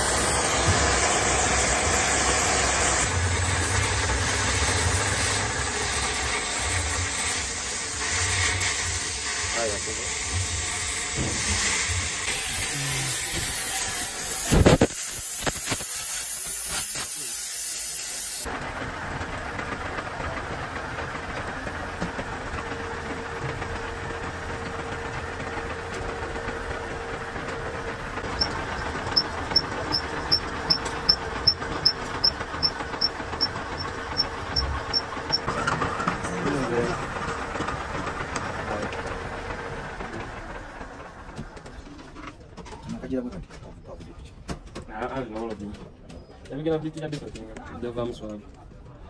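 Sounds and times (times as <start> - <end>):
gas torch hissing: 0.0 - 18.5
metal lathe humming: 28.2 - 39.1.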